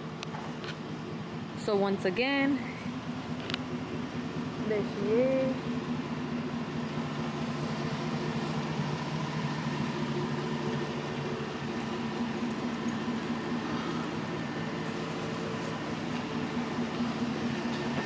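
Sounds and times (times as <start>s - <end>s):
steady machine hum: 0.0s - 18.0s.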